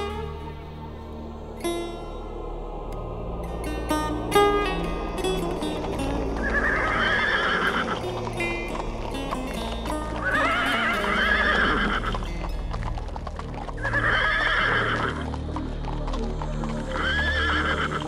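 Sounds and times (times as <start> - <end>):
hooves clopping: 0.0 - 18.0
low droning music: 0.0 - 18.0
horse whinnying: 10.2 - 12.2, 13.8 - 15.2.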